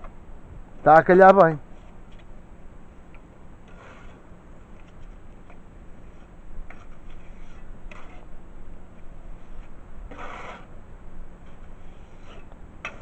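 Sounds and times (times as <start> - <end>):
trowel scraping and tapping mortar: 12.1 - 13.0.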